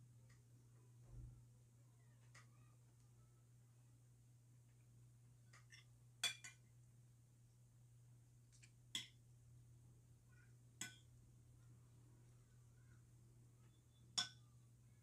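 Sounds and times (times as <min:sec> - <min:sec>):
metal spoon clinking on plate: 0:05.5 - 0:06.6.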